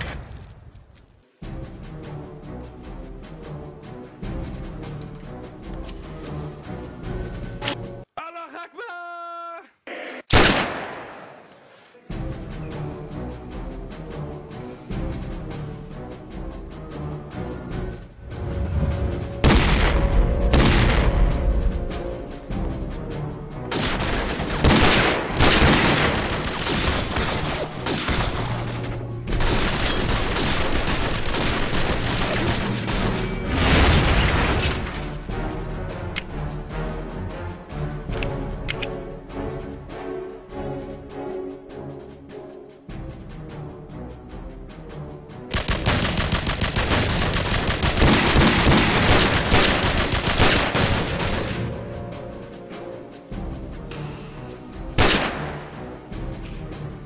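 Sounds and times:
background music: 0:00.0 - 0:57.0
rapid machine-gun fire: 0:23.7 - 0:28.7, 0:29.3 - 0:33.3, 0:45.5 - 0:51.6
rapid gunfire: 0:23.7 - 0:33.3, 0:45.5 - 0:51.7, 0:55.0 - 0:55.6.

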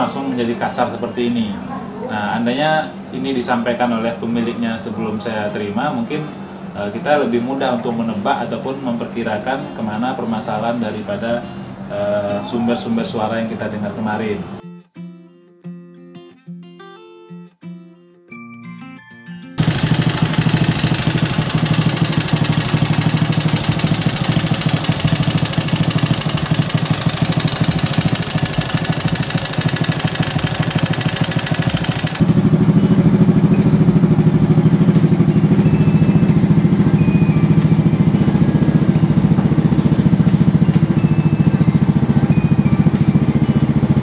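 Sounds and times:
motorcycle engine idling rough: 0:19.6 - 0:44.0.

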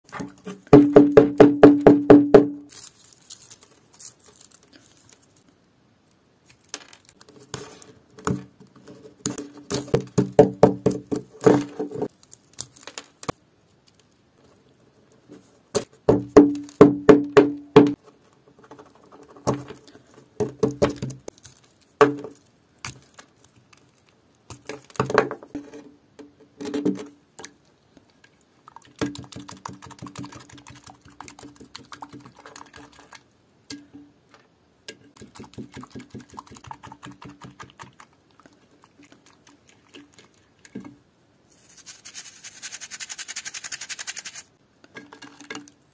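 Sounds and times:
dried mud crunching and crackling: 0:02.7 - 0:05.5.

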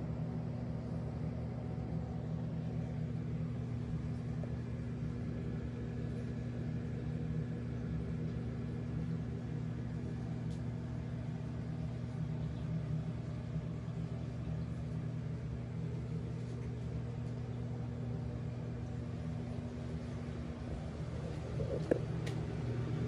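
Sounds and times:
aquarium pumps humming: 0:00.0 - 0:23.0.

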